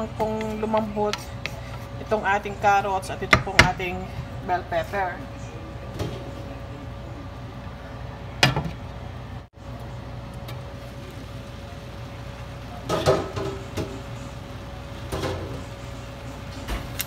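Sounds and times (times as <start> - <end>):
pan cooking hum and hiss: 0.0 - 17.0.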